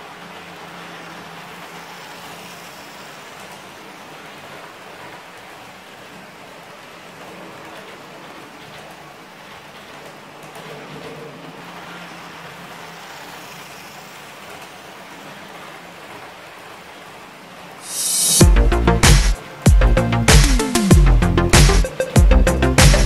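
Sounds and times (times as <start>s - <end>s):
model train wheels rattling on rails: 0.0s - 6.4s, 7.0s - 16.8s.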